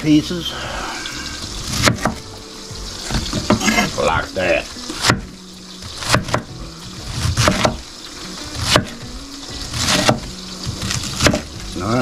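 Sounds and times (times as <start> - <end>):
knife cutting cabbage: 1.6 - 2.2, 4.9 - 5.4, 6.0 - 6.5, 7.1 - 7.8, 8.6 - 9.0, 9.6 - 11.6.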